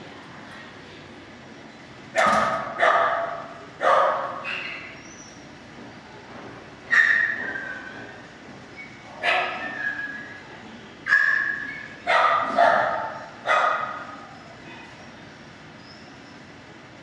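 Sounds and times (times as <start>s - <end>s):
dogs barking with echo: 2.2s - 4.9s, 11.1s - 14.2s.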